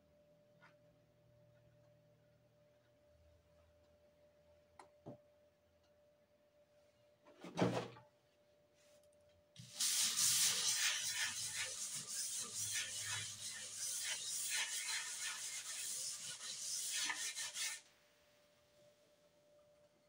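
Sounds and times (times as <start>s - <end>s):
brush scrubbing over paper: 9.6s - 17.8s.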